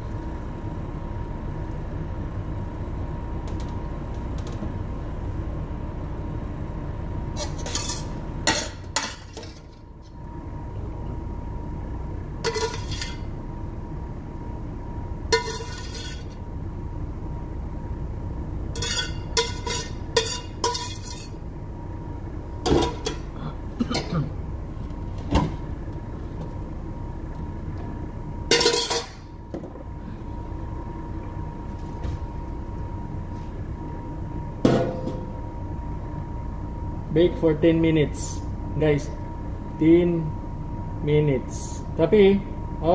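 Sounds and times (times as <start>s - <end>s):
low machinery hum: 0.0s - 42.9s
metal cookware clinking: 12.5s - 13.2s, 15.4s - 16.2s, 18.8s - 21.3s, 28.5s - 29.2s.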